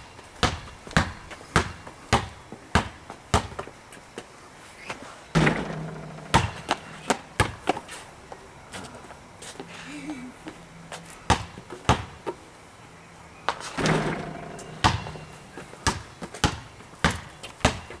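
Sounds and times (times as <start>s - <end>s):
basketball bouncing on paving: 0.4s - 3.7s, 5.4s - 7.8s, 11.3s - 12.2s, 13.6s - 18.0s
ball clattering on hoop: 5.4s - 7.7s, 13.8s - 16.0s.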